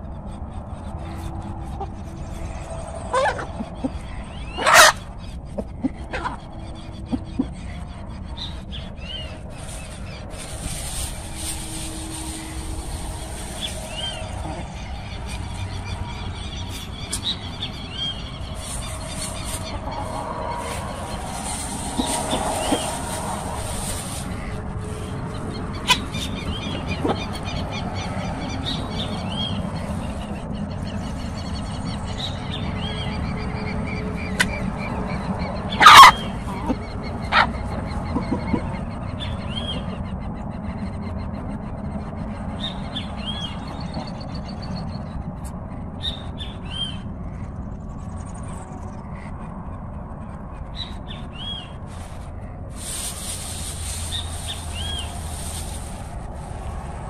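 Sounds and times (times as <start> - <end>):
chickens feeding: 0.0 - 40.1, 51.0 - 57.0
steady low rumble: 0.0 - 57.0
chicken squawking: 3.1 - 8.7, 16.8 - 27.6, 35.7 - 38.8
chicken high call: 4.6 - 5.1, 35.8 - 38.6.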